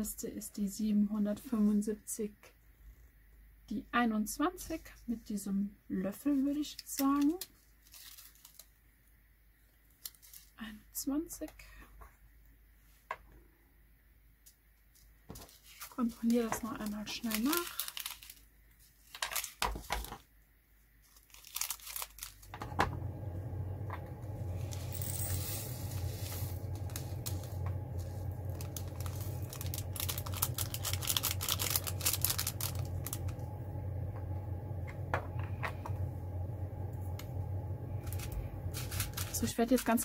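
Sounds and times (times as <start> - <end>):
plastic bag crinkling: 6.5 - 8.8, 9.9 - 10.6, 15.3 - 20.2, 21.0 - 22.8, 24.3 - 33.5, 37.9 - 40.0
small beads clicking and rattling: 7.0 - 8.8, 10.0 - 10.6, 15.0 - 18.5, 21.1 - 22.5, 24.6 - 33.3, 38.0 - 40.0
low steady hum: 21.9 - 40.0.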